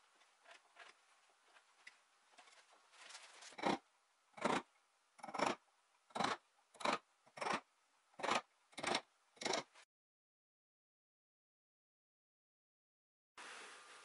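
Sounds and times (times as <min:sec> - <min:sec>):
faint scraping: 0:00.0 - 0:03.7
gouge cutting wood: 0:04.4 - 0:09.7.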